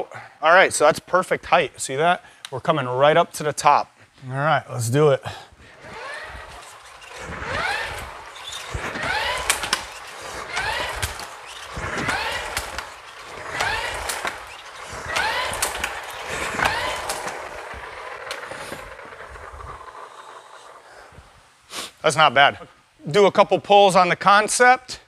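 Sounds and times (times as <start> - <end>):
ski erg whirring whine: 4.8 - 21.6.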